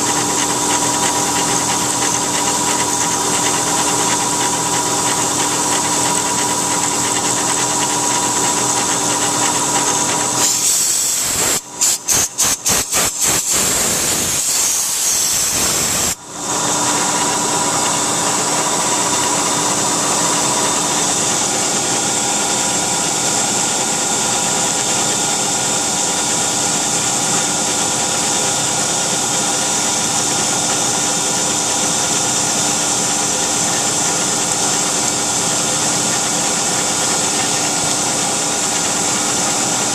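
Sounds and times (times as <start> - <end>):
coolant hiss: 0.0 - 16.2
milling spindle whine: 0.0 - 39.9.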